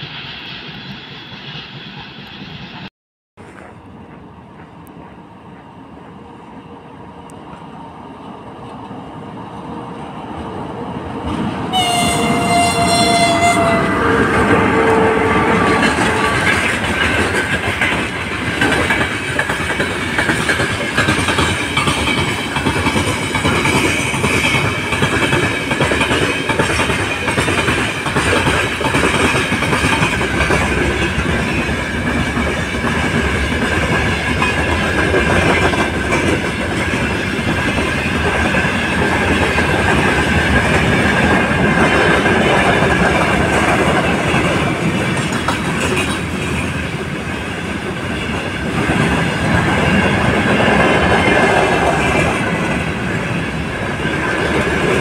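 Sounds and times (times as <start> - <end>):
freight train rumbling past: 0.0 - 55.0
wheels clacking over rail joints: 11.2 - 55.0
locomotive horn blast: 11.7 - 16.8.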